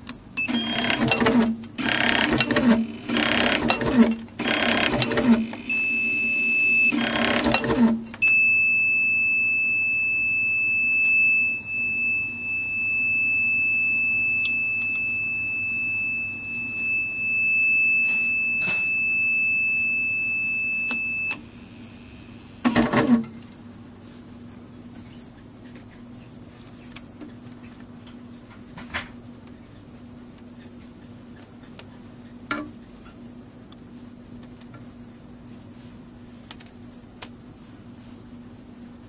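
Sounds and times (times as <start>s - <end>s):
high-pitched alarm buzzer tone: 0.4s - 22.3s
tube-cutting machine running: 0.5s - 8.1s.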